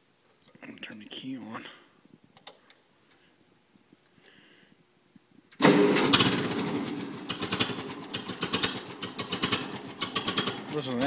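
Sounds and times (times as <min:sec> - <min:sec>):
tractor engine starting and running: 0:05.6 - 0:11.0.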